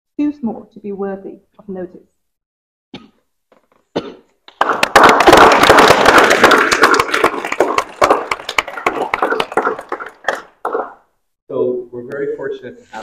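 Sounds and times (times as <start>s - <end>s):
people applauding: 4.5s - 11.0s.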